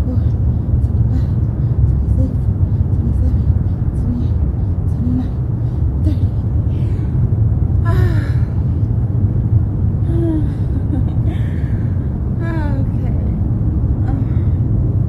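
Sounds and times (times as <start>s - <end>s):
low outdoor rumble: 0.0s - 15.0s
woman gasping: 10.1s - 12.0s.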